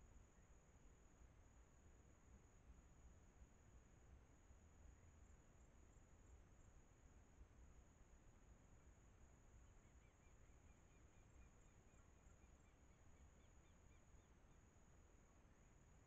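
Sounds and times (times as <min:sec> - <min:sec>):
steady high-pitched whine: 0:00.0 - 0:16.0.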